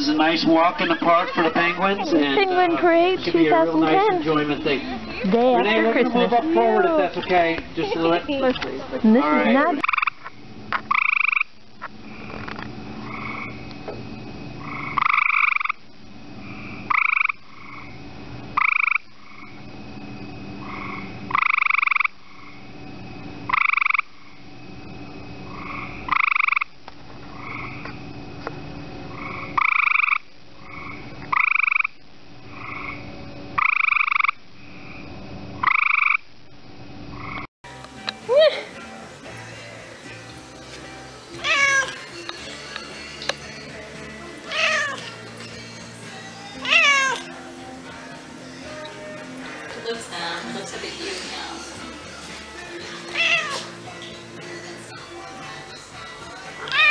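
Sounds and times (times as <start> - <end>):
frog calling: 9.2 - 13.8, 14.6 - 19.6, 20.6 - 22.7, 23.4 - 24.4, 25.4 - 28.0, 29.1 - 35.0, 35.6 - 36.3, 37.1 - 37.5, 41.3 - 45.4, 46.3 - 51.0, 52.6 - 55.0, 56.0 - 56.9
faint frog calls: 9.2 - 13.9, 14.5 - 24.6, 25.4 - 28.1, 29.0 - 36.4, 37.1 - 37.5, 41.3 - 43.8, 44.4 - 45.4, 46.4 - 50.6, 52.6 - 54.1.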